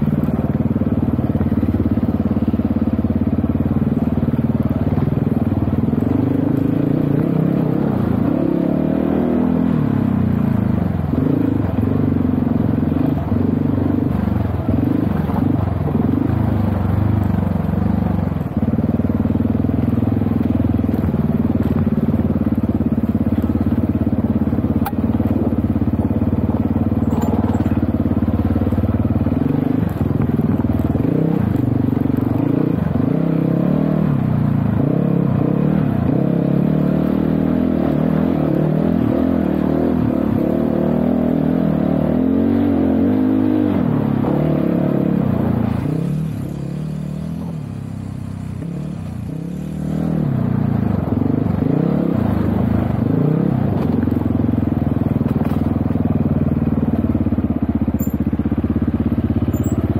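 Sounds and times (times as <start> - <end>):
dirt bike engine revving: 29.1 - 47.4.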